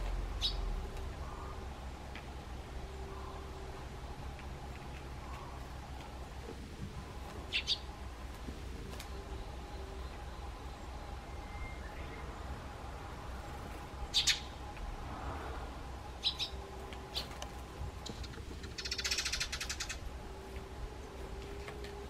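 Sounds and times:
sparrow chirps: 0:00.4 - 0:00.7, 0:07.5 - 0:07.9, 0:14.1 - 0:14.6, 0:16.2 - 0:17.4, 0:18.0 - 0:20.0.

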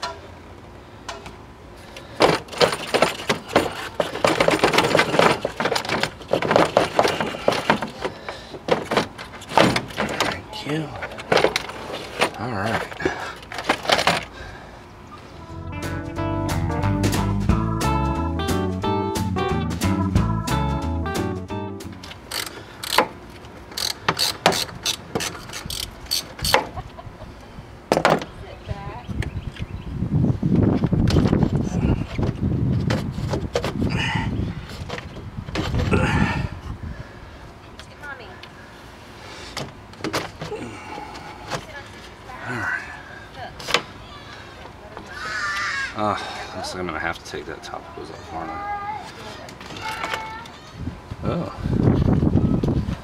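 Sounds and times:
plastic duct and hoses creaking: 0:02.0 - 0:14.3
hand ratchet clicking: 0:22.0 - 0:26.6.

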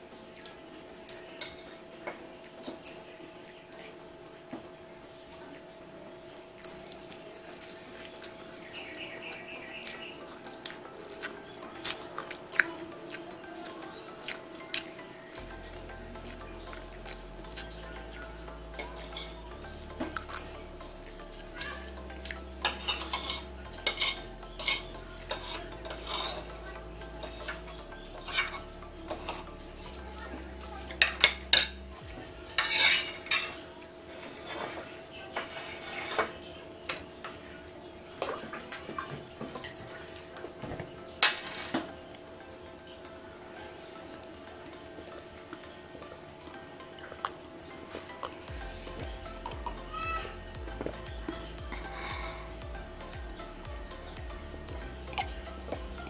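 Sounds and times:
cutlery clatter: 0:22.6 - 0:26.6, 0:28.3 - 0:29.4, 0:32.6 - 0:36.4, 0:40.7 - 0:42.0
cutlery scraping on plate: 0:22.7 - 0:26.5, 0:28.2 - 0:29.4, 0:32.6 - 0:36.4.

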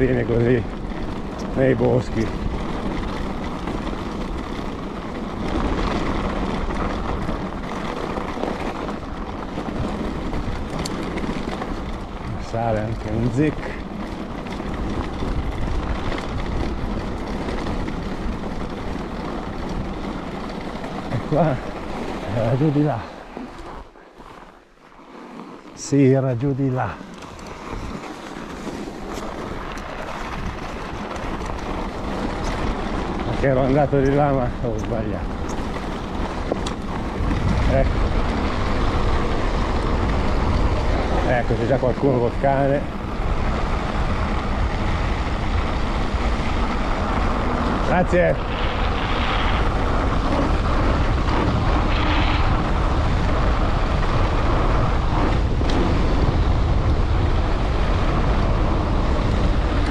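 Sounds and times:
bicycle tyres on hard snow: 0:00.0 - 0:59.9
wind on microphone: 0:26.2 - 0:59.9.

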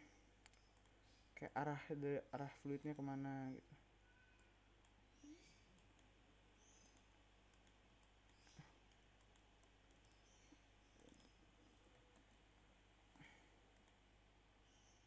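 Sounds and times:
computer mouse clicks: 0:00.4 - 0:01.0, 0:04.4 - 0:12.4, 0:13.1 - 0:14.0.

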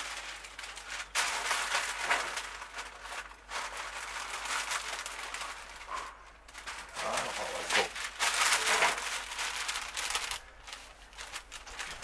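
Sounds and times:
baking paper crinkling and rustling: 0:00.0 - 0:12.0.

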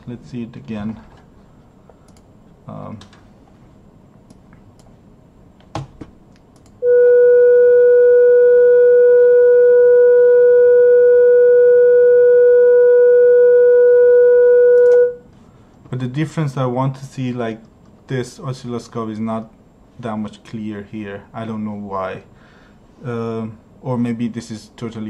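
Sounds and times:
click: 0:02.1 - 0:02.3, 0:04.3 - 0:04.9, 0:06.3 - 0:06.8, 0:14.8 - 0:15.0
steady test tone: 0:06.8 - 0:15.2.

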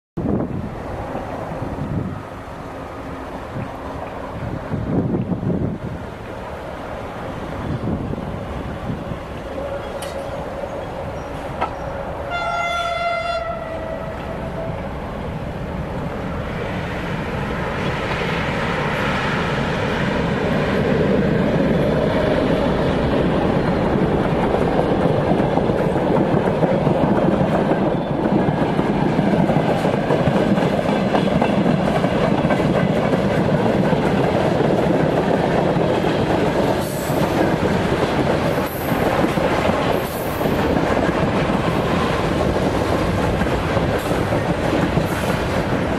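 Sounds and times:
freight train wheels rolling: 0:00.2 - 0:45.9
train horn: 0:11.7 - 0:14.9.

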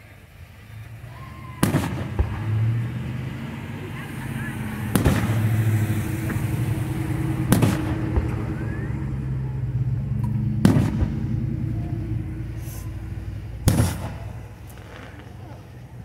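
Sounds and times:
firework shells booming: 0:01.4 - 0:15.8
steady low hum: 0:02.0 - 0:16.0.

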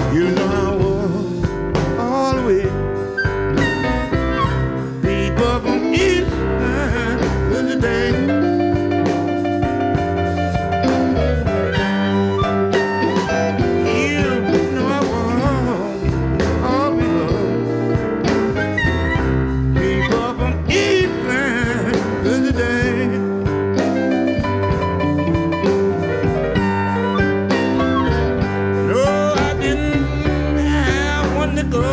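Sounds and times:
electric blues band playing: 0:00.0 - 0:31.9
lead guitar bent notes: 0:03.0 - 0:07.1, 0:08.3 - 0:15.3, 0:16.4 - 0:21.9, 0:23.5 - 0:30.6.

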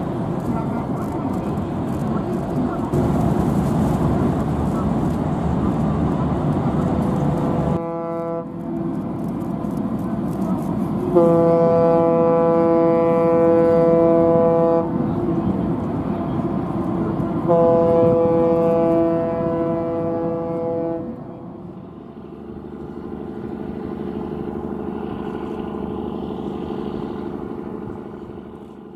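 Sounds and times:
deep ship horn blasts: 0:07.6 - 0:09.0, 0:11.1 - 0:15.4, 0:17.4 - 0:21.6.

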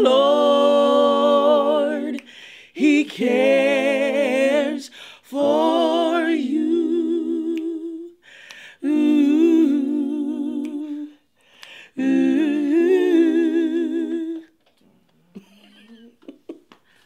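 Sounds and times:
singers breathing: 0:02.2 - 0:02.8, 0:04.9 - 0:05.3, 0:08.2 - 0:08.8, 0:11.2 - 0:12.0.

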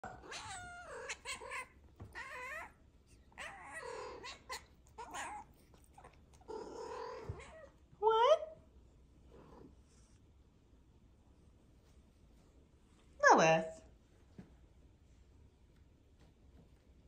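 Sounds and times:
cat meowing: 0:00.0 - 0:07.8.

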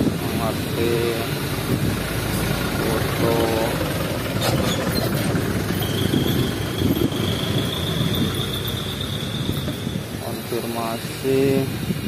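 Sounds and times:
air-conditioning running: 0:00.0 - 0:05.8
car engine idling: 0:00.0 - 0:11.4.

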